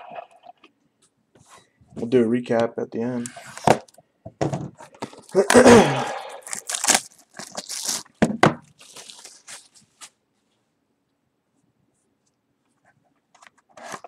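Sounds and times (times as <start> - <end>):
foil wrapper tearing and crinkling: 5.3 - 8.2, 8.8 - 9.8.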